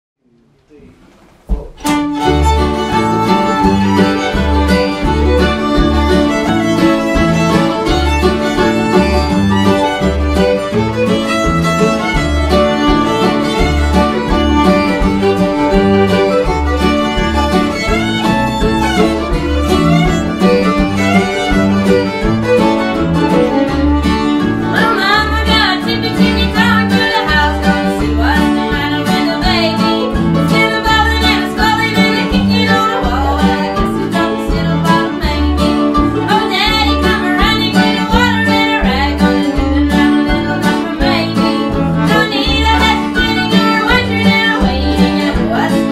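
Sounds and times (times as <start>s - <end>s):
acoustic guitar: 0.4s - 45.9s
upright bass plucking: 0.8s - 45.9s
mandolin: 1.6s - 45.9s
fiddle: 1.8s - 45.9s.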